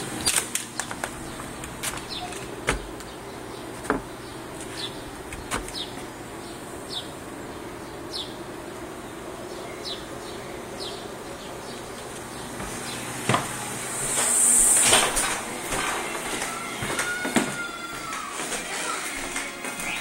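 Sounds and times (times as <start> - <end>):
bird chirping: 1.2 - 13.1
background hiss: 12.7 - 16.7.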